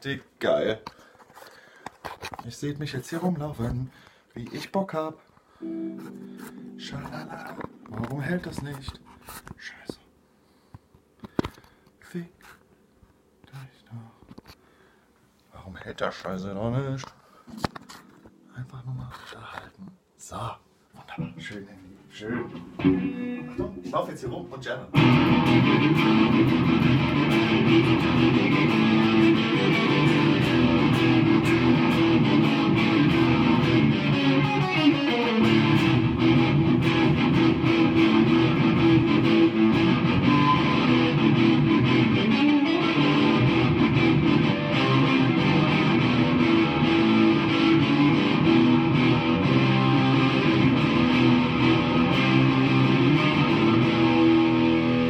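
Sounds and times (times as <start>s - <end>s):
electric guitar through amp: 5.6s - 9.0s, 22.5s - 23.8s, 24.9s - 55.0s.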